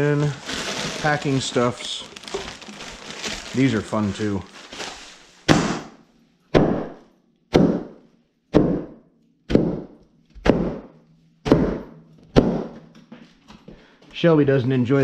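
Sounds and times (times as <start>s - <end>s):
plastic rustling: 0.0s - 5.5s.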